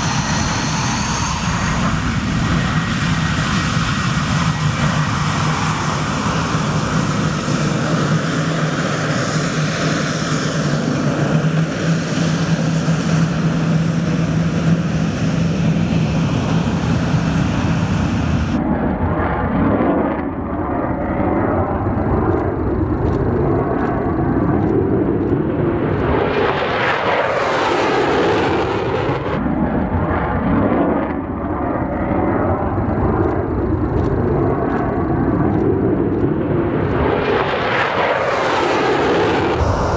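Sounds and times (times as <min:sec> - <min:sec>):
jet takeoff rumble: 0:00.0 - 0:29.4, 0:32.4 - 0:39.9
jet engine whine taxiing: 0:00.0 - 0:39.9.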